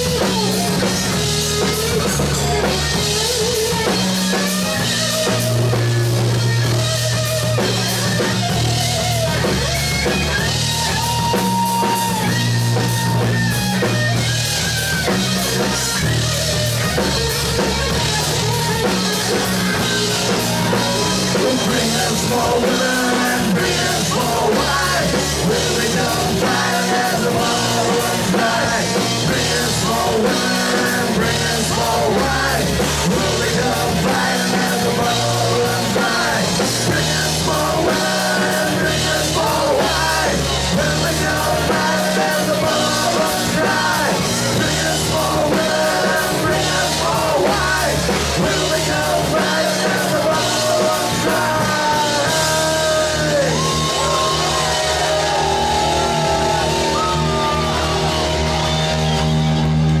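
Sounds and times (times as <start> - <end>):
heavy metal band playing: 0.0 - 60.0
singer yelling into microphone: 18.7 - 58.7.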